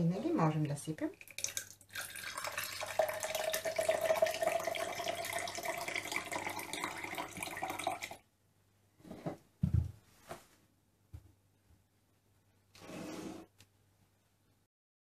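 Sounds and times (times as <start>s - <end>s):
lemonade pouring into glass: 1.1s - 8.2s.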